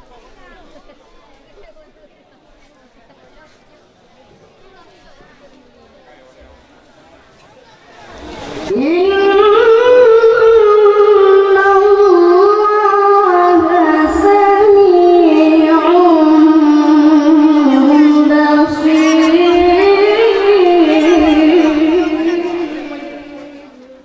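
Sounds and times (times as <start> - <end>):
boy reciting melodically into microphone: 8.7 - 24.0.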